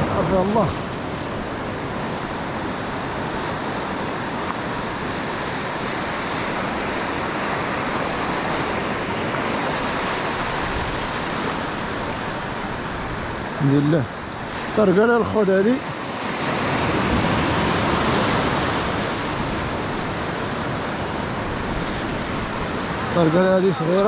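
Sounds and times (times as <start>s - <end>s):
waves breaking on shore: 0.0s - 24.0s.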